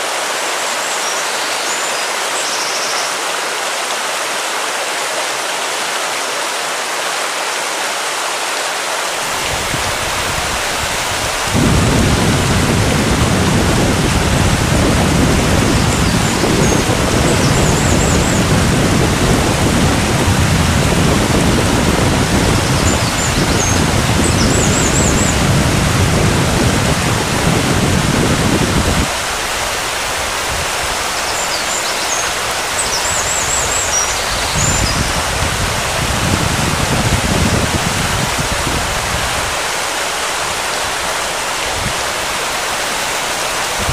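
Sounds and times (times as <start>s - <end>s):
wind rumble on microphone: 9.3s - 39.7s, 40.3s - 42.5s, 43.6s - 43.9s.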